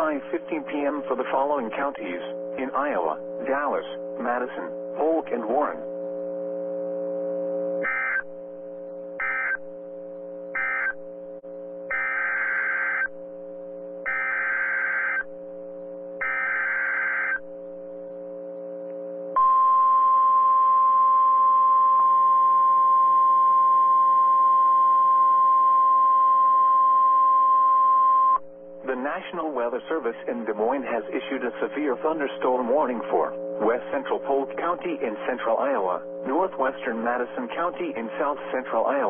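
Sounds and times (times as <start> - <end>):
steady warning alarm tone: 0.0 - 6.7, 7.6 - 18.4, 19.4 - 39.0
data bursts: 7.8 - 8.3, 9.2 - 9.6, 10.6 - 11.0, 11.9 - 13.1, 14.1 - 15.3.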